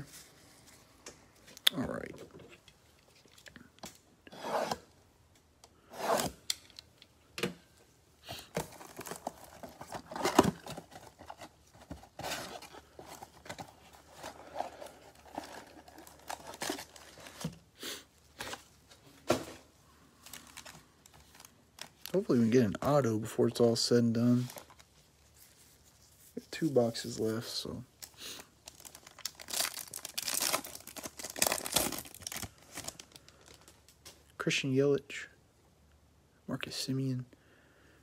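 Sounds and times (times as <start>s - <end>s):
foil packs rustling: 8.4s - 17.7s, 26.5s - 33.9s
plastic wrap ripping: 28.7s - 33.8s.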